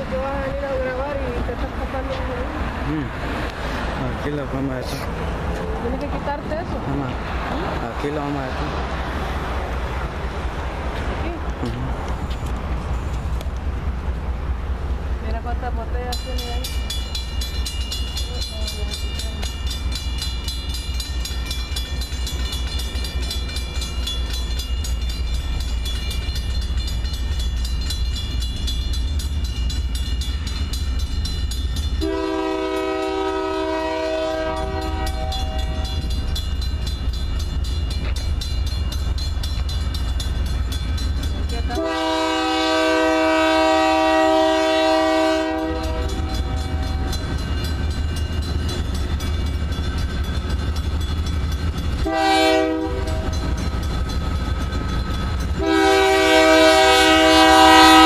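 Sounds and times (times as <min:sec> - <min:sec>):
crossing signal bell ringing: 0:15.3 - 0:58.0
locomotive air horn blasts: 0:32.0 - 0:36.1, 0:41.8 - 0:47.1, 0:52.0 - 0:53.4, 0:55.6 - 0:58.0.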